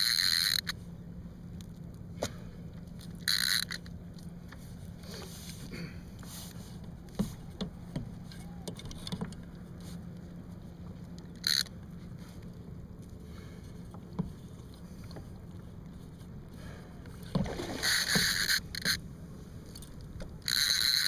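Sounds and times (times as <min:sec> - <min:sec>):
fishing reel clicks and knocks: 0:00.0 - 0:00.8, 0:03.0 - 0:04.0, 0:11.2 - 0:11.7, 0:19.7 - 0:21.0
steady low hum: 0:00.0 - 0:21.0.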